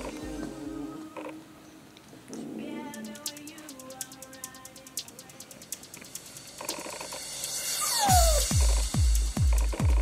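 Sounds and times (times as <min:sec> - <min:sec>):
puppies whimpering: 0:07.8 - 0:08.5.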